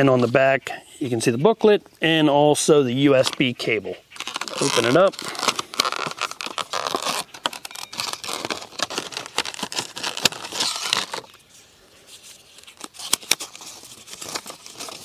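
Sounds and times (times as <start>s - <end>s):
paper booklet rustling: 3.1s - 15.0s
plastic blister pack crinkling: 4.1s - 11.5s, 12.1s - 15.0s.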